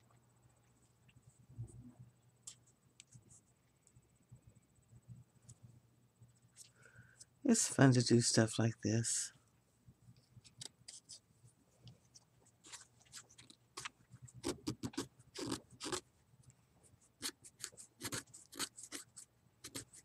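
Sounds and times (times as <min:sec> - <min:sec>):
knife shaving wood: 0:17.2 - 0:20.0.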